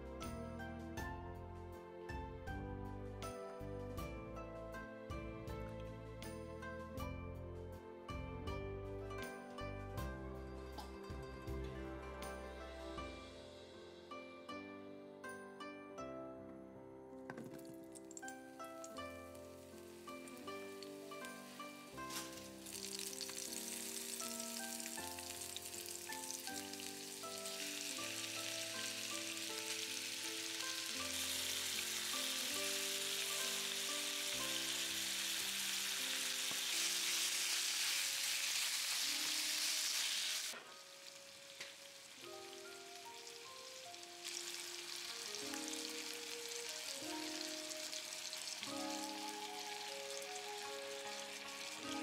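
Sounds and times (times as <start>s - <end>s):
background music: 0.0s - 52.0s
meat sizzling in a frying pan: 17.6s - 52.0s.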